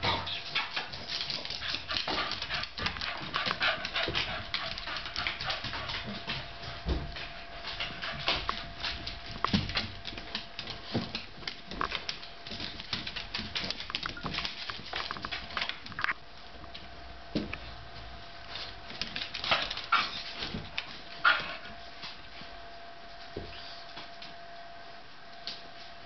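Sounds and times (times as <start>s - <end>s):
dog claws clicking on hardwood floor: 7.2s - 16.2s, 18.6s - 21.5s.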